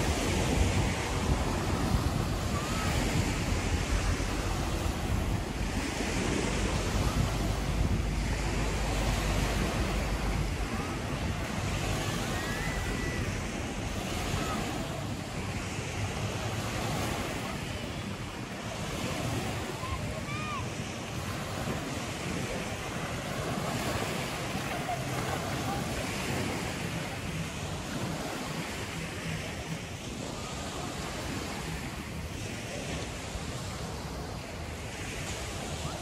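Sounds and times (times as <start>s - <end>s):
wind rumbling on microphone: 0.0s - 36.0s.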